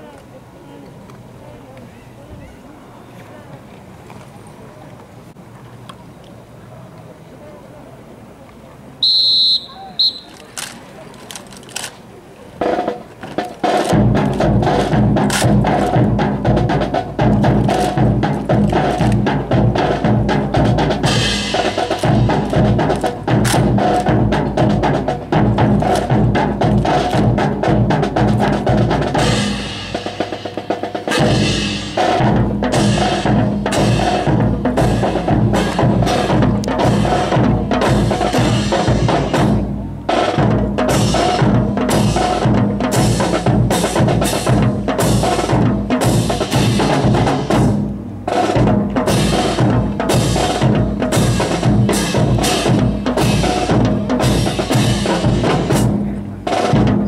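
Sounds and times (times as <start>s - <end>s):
drum roll: 12.6s - 57.0s
snare and bass drum beat: 12.6s - 57.0s.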